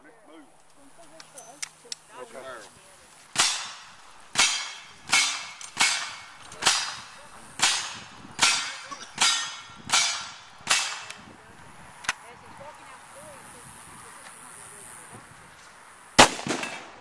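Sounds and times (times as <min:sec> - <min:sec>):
gunshots with echo: 0:03.4 - 0:11.1, 0:16.2 - 0:17.0.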